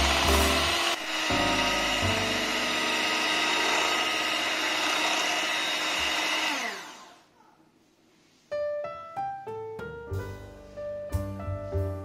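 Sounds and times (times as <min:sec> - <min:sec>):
electric hand mixer whining: 0:00.0 - 0:07.2.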